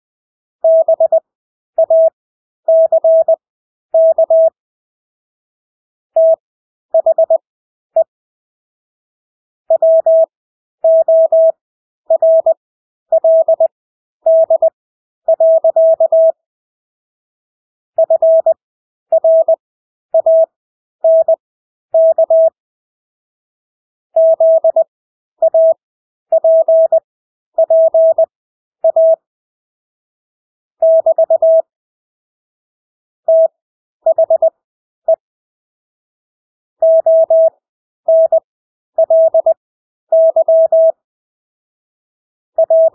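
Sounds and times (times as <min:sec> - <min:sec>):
morse code beeps: 0:00.6 - 0:01.2, 0:01.8 - 0:03.4, 0:04.0 - 0:04.6, 0:06.2 - 0:06.4, 0:07.0 - 0:07.4, 0:09.7 - 0:10.3, 0:10.9 - 0:13.7, 0:14.3 - 0:14.7, 0:15.3 - 0:16.4, 0:18.0 - 0:19.6, 0:20.2 - 0:20.5, 0:21.1 - 0:21.4, 0:22.0 - 0:22.6, 0:24.2 - 0:24.8, 0:25.4 - 0:27.0, 0:27.6 - 0:29.2, 0:30.8 - 0:31.7, 0:33.3 - 0:35.2, 0:36.8 - 0:41.0, 0:42.6 - 0:42.9.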